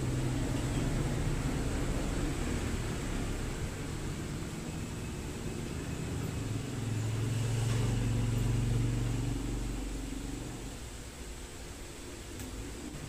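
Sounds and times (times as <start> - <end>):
vehicle engine passing: 0.0 - 10.8.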